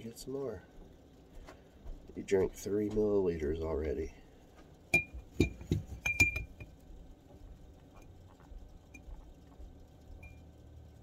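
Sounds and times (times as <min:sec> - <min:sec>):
syringe clinking against glass jar: 0:04.9 - 0:06.7.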